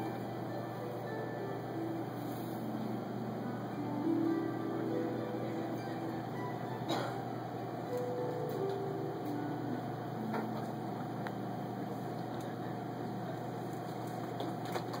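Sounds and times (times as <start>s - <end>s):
harp plucked notes: 0.0s - 11.4s
steady low hum: 0.0s - 15.0s.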